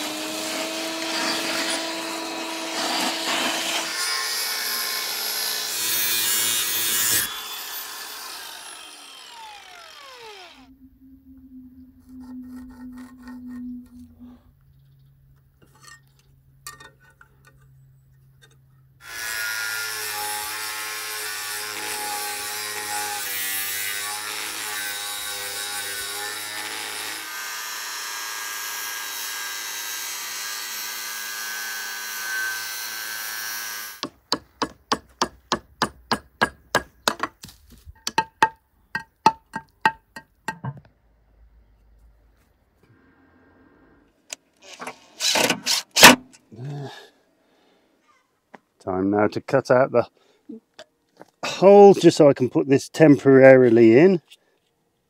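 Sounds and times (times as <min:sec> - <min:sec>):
angle grinder cutting concrete: 0:00.0 - 0:10.7, 0:19.0 - 0:34.0
hammer striking concrete: 0:34.0 - 0:37.3.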